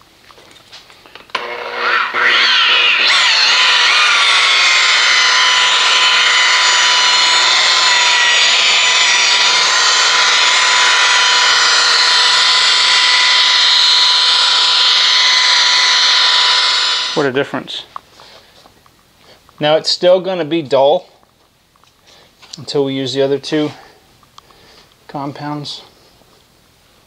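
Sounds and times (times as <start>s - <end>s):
polisher motor whine: 1.3s - 17.2s.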